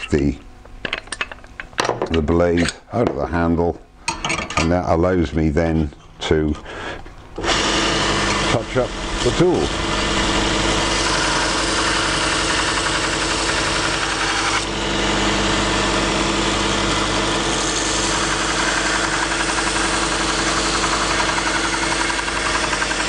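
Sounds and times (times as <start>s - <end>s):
belt sharpener motor humming: 6.6s - 23.0s
blade grinding on abrasive belt: 7.4s - 23.0s.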